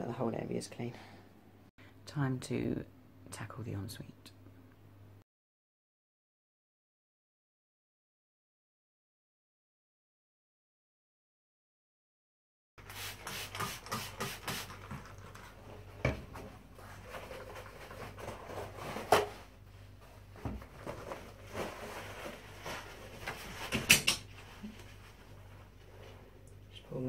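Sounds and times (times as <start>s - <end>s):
scrubbing a washbasin: 12.8s - 16.0s.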